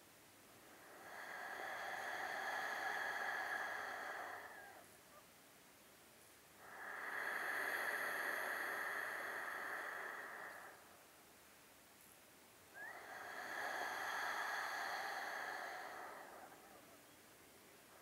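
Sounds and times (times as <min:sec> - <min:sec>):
slow deep breathing: 0:00.5 - 0:05.0, 0:06.5 - 0:11.2, 0:12.7 - 0:18.0.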